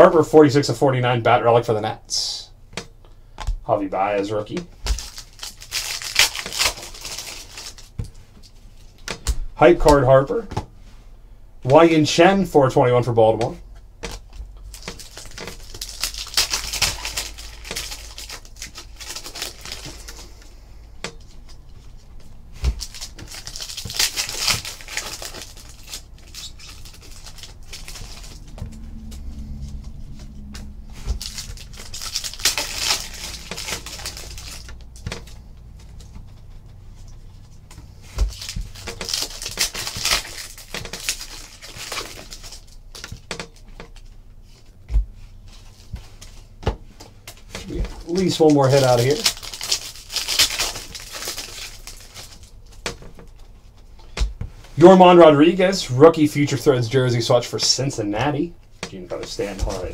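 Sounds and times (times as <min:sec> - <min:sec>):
foil packs tearing and crinkling: 0:04.8 - 0:08.0, 0:14.1 - 0:20.4, 0:22.6 - 0:28.6, 0:31.0 - 0:35.4, 0:38.0 - 0:44.1, 0:47.6 - 0:53.0.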